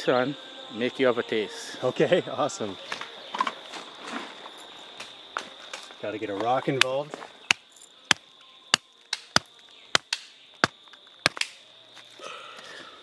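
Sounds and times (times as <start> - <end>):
rock knocking on hard shell: 11.2 - 11.4.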